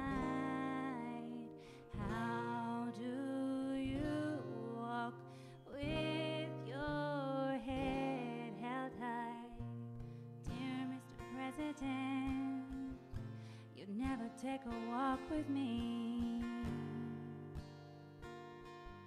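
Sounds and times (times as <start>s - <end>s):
woman singing with vibrato: 0.0s - 9.8s, 10.5s - 13.0s, 13.8s - 17.4s
acoustic guitar: 0.0s - 19.0s.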